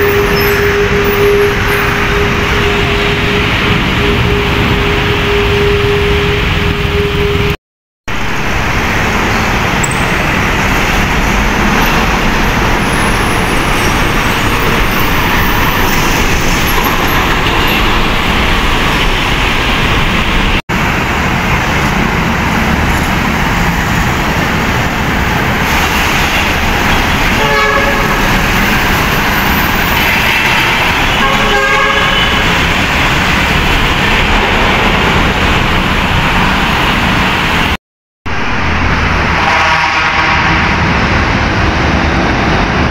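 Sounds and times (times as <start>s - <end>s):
vehicle horn beeping: 0.0s - 7.6s, 27.4s - 28.4s, 29.8s - 32.6s, 39.4s - 40.7s
road traffic passing: 0.0s - 42.9s.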